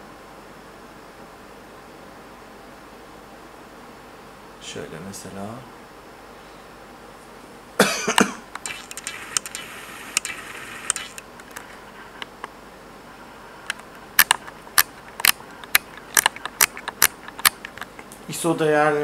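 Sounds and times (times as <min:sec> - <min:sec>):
person coughing: 0:07.8 - 0:08.5.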